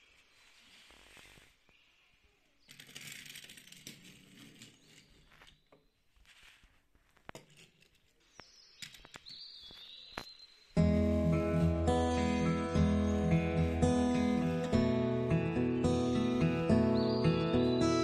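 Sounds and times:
faint rustling: 0.0 - 14.8
acoustic guitar music: 10.8 - 18.0.

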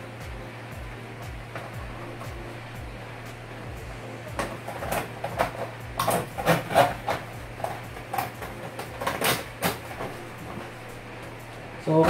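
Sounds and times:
steady low hum: 0.0 - 12.0
electrical wires clicking and rustling: 4.3 - 10.8.

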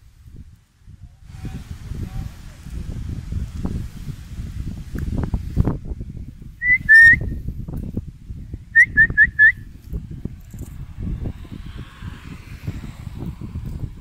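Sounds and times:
person whistling: 6.6 - 7.3, 8.8 - 9.6.

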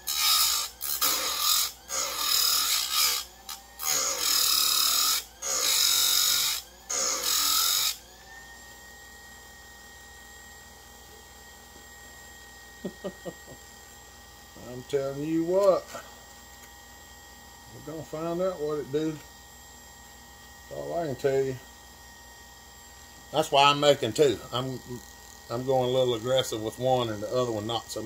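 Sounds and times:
grinder grinding chain teeth: 0.0 - 7.9
grinder motor humming: 0.0 - 28.0.

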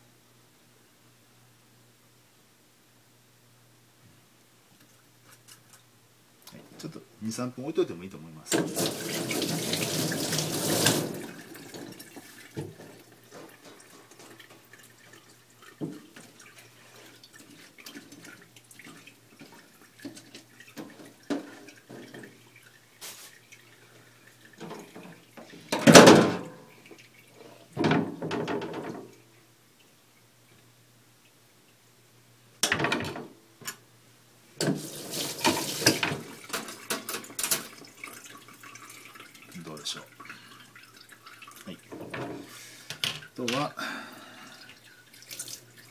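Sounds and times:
tap running into steel sink: 34.6 - 37.7.

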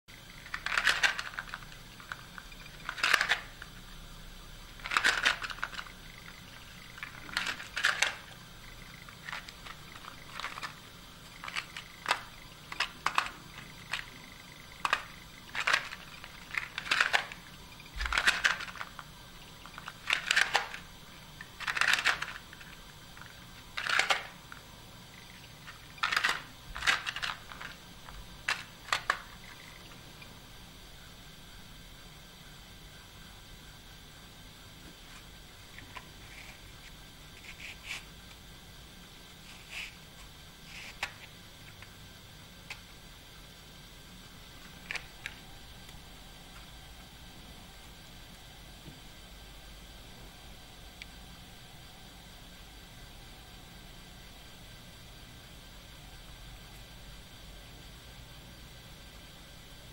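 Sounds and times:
wooden toy blocks clacking: 0.4 - 3.8, 4.8 - 24.7, 25.3 - 30.0.

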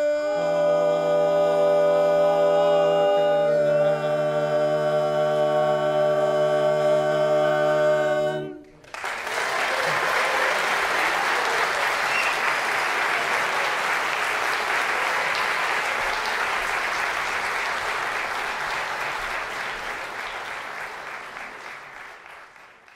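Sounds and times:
audience applauding: 8.8 - 22.9.

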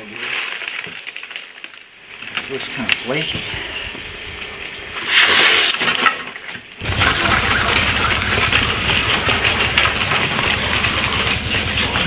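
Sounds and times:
harsh rushing noise: 6.8 - 12.0.

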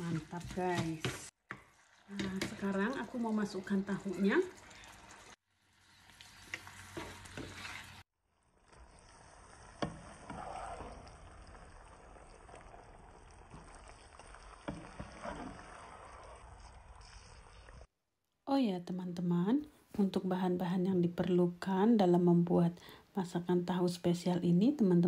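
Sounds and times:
food sizzling in a frying pan: 1.5 - 17.8.

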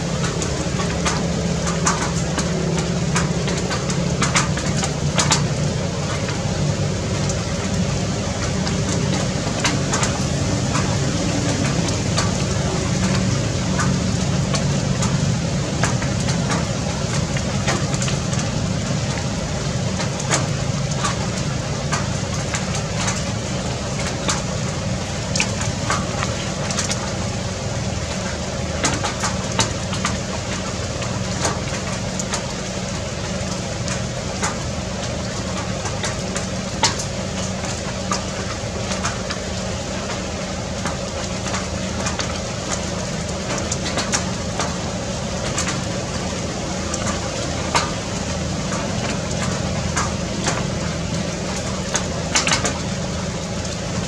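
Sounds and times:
low mechanical drone: 0.0 - 54.0.

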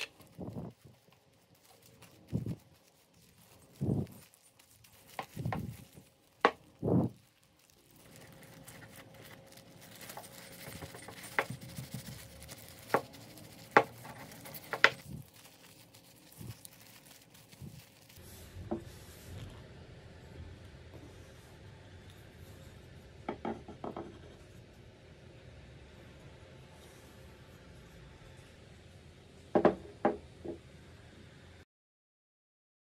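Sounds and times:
wood knocking on wood: 13.7 - 15.0, 23.3 - 24.3, 29.5 - 30.6.

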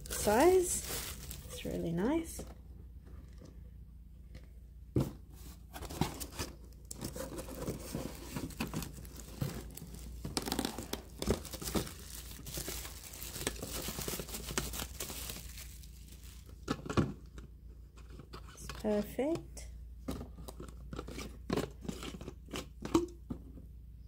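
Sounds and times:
plastic bag crinkling: 0.0 - 2.4, 6.9 - 16.7.

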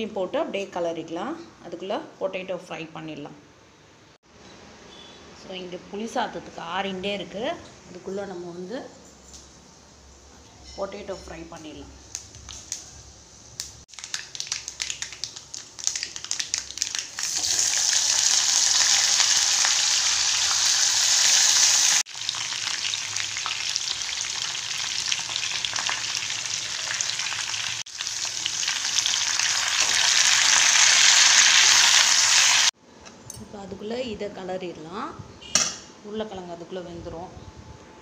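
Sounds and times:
potatoes sizzling in oil: 13.5 - 32.7
hot oil crackling and spluttering: 13.6 - 32.7.

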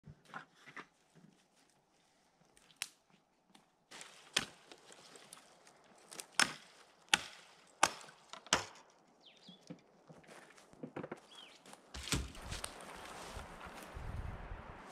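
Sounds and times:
hatchet chopping dry branch: 4.2 - 4.8, 6.1 - 8.9, 12.0 - 12.8.

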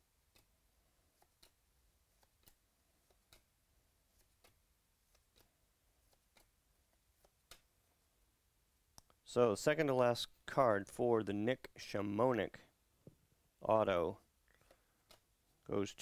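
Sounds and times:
cards flicking clicks: 1.2 - 3.5, 4.1 - 6.6, 7.2 - 7.7.

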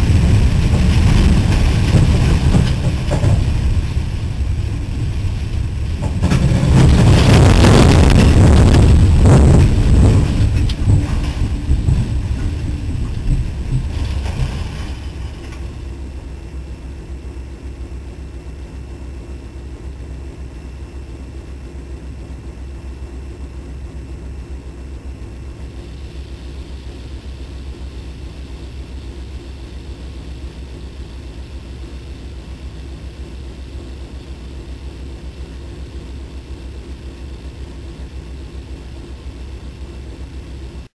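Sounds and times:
tornado wind roaring: 0.0 - 16.8
diesel locomotive engine idling: 0.0 - 40.9.

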